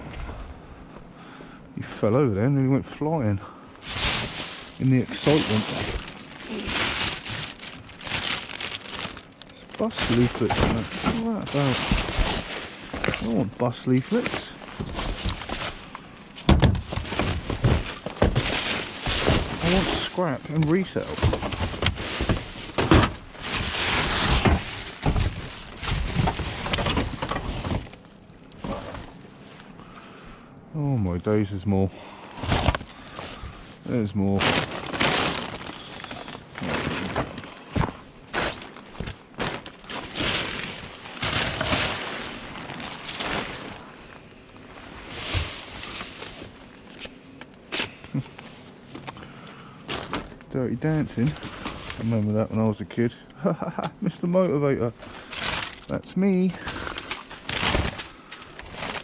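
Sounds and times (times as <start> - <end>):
plastic bags rustling: 3.4 - 29.8, 32.3 - 53.2, 54.8 - 59.0
knocks and thuds of items: 3.8 - 9.2, 9.8 - 13.4, 14.1 - 15.8, 16.4 - 28.0, 32.4 - 33.4, 34.4 - 43.5, 49.9 - 50.4.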